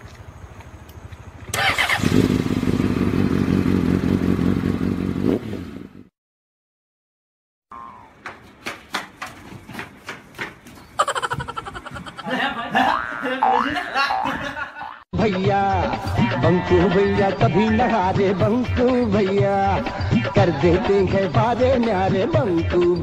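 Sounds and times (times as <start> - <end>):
scooter engine running: 1.1 - 5.6.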